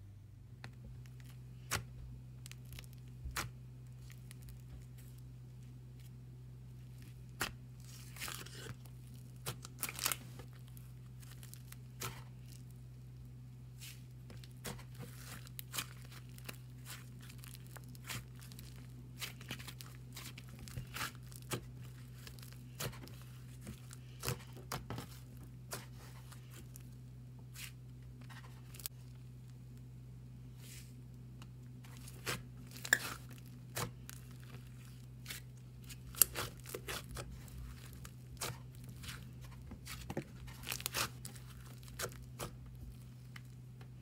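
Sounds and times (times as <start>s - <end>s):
slime squished by hand: 7.0s - 12.6s, 13.8s - 26.8s, 31.8s - 43.5s.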